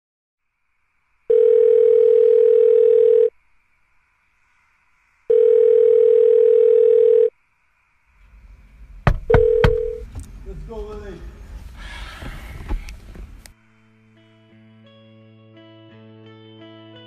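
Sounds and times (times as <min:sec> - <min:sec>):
telephone ringback tone: 0:01.3 - 0:03.3, 0:05.3 - 0:07.3, 0:09.3 - 0:10.0.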